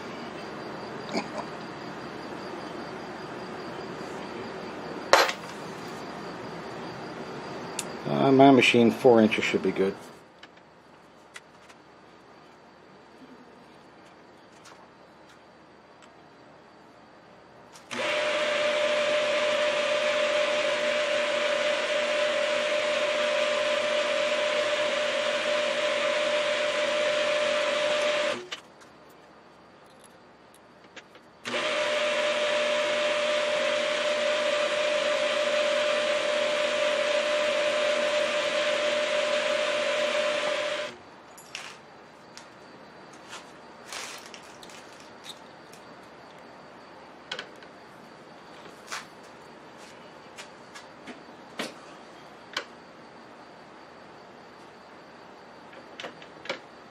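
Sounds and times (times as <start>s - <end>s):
milling machine motor whining: 17.9s - 28.5s, 31.4s - 41.0s.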